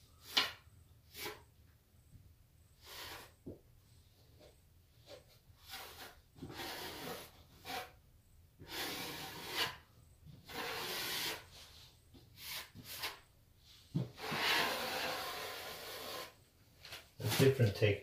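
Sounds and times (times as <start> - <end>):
taping knife scraping plaster: 0.2 - 1.5, 2.8 - 3.4, 5.6 - 8.0, 8.6 - 13.3, 14.2 - 16.4.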